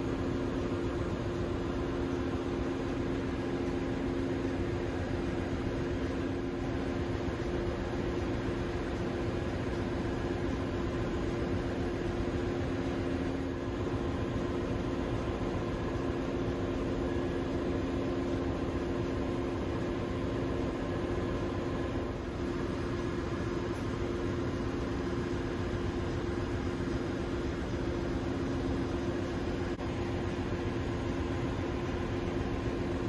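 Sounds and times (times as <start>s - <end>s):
engine-room machinery drone: 0.0s - 33.0s.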